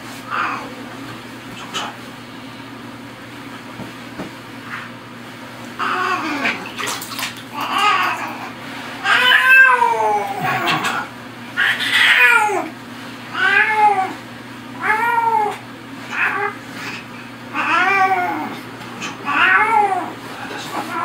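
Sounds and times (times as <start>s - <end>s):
cat meowing: 9.0s - 11.0s, 19.2s - 20.1s.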